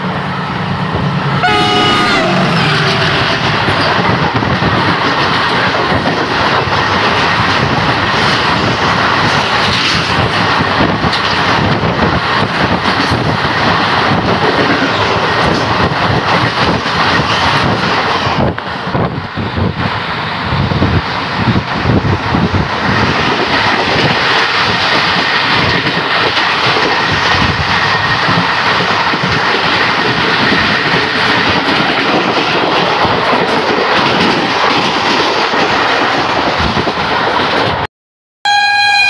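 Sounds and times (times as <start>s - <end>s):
passing freight train rush: 0.0s - 37.9s, 38.5s - 39.0s
locomotive horn: 1.4s - 3.6s, 38.4s - 39.0s.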